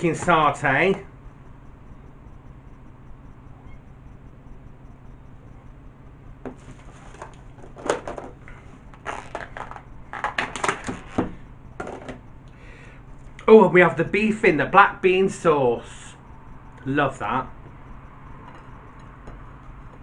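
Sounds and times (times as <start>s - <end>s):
room hum: 0.0s - 20.0s
plastic container crinkling: 9.0s - 11.1s.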